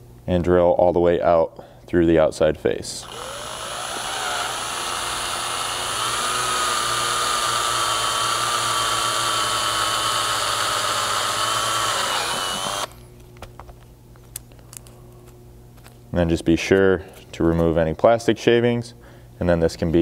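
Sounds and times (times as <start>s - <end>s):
cordless drill boring plastic: 3.0s - 13.0s.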